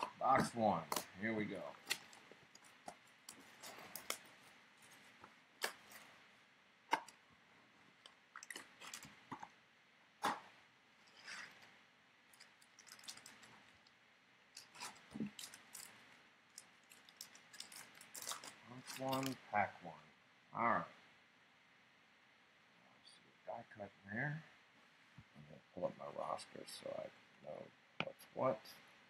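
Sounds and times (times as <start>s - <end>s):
plastic wrap crinkling: 0.0s - 6.1s, 7.9s - 9.2s, 12.3s - 13.9s, 14.5s - 19.4s
cardboard clicks and snaps: 1.8s - 3.0s.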